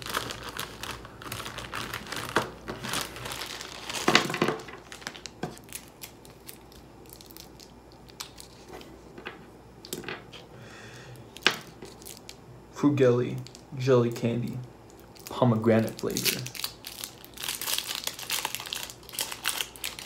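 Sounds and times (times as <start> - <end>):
candy wrapper crinkling: 0.0 - 8.8, 11.3 - 12.4, 14.9 - 20.0.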